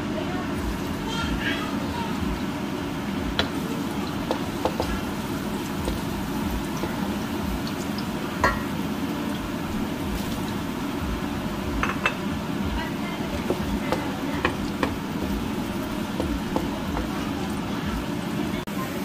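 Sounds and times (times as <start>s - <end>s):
garlic frying in oil: 0.0s - 19.0s
wooden spatula knocking on pan: 4.2s - 5.1s, 11.8s - 12.2s, 13.3s - 17.3s.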